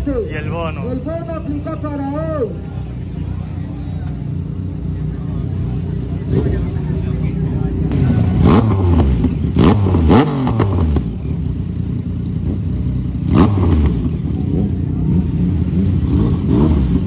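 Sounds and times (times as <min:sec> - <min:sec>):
motorcycle engine revving: 0:00.4 - 0:17.0.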